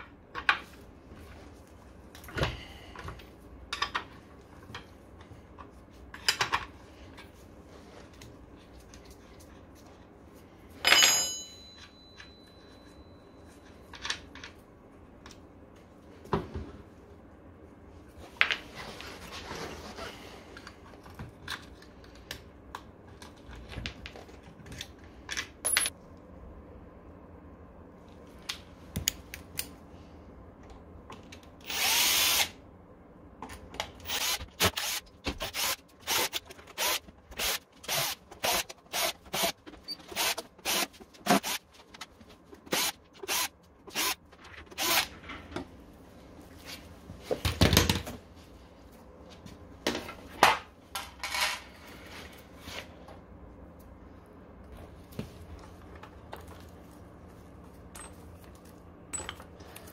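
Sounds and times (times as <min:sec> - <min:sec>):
ringing metallic clang: 0:10.9 - 0:13.1
tools clicking and knocking on metal: 0:57.9 - 0:59.6.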